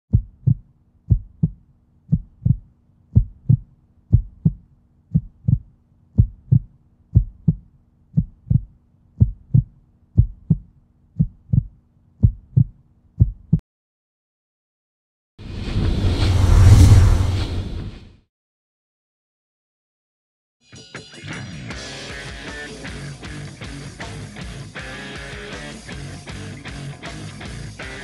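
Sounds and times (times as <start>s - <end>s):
heartbeat thumps: 0.1s - 13.6s.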